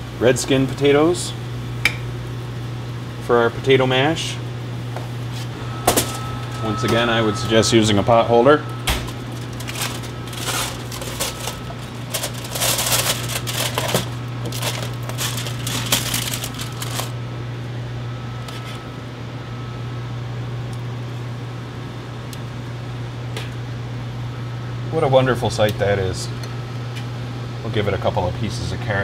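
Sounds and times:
kitchen ventilation hum: 0:00.0 - 0:29.0
foil and plastic wrap crinkling: 0:08.9 - 0:17.2.

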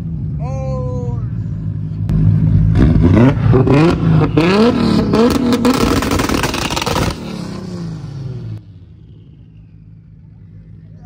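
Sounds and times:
car engine revving: 0:01.2 - 0:11.0
sharp exhaust cracks: 0:01.6 - 0:11.0.

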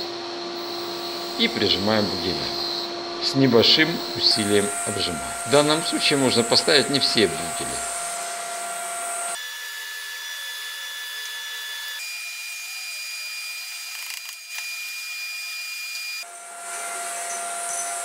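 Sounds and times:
faint high whine: 0:00.0 - 0:09.4.

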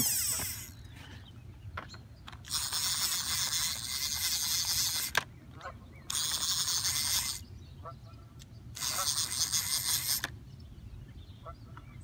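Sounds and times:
fishing reel drag buzzing: 0:00.0 - 0:00.9, 0:02.4 - 0:05.2, 0:06.1 - 0:07.4, 0:08.7 - 0:10.4.

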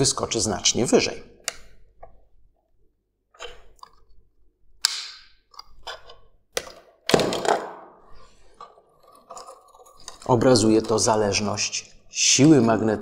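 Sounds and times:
wire coil snapping off magnet: 0:04.8 - 0:05.2.

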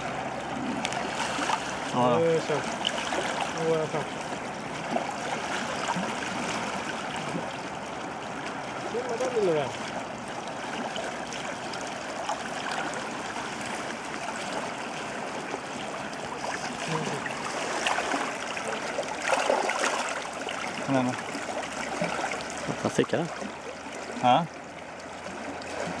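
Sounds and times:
river water flowing: 0:00.0 - 0:26.0
water splashing around hands: 0:16.2 - 0:23.5.

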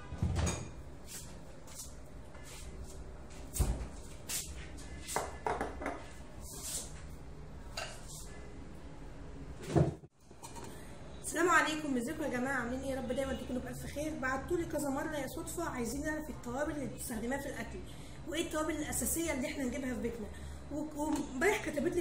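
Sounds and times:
plastic jars knocking on counter: 0:05.2 - 0:06.0.

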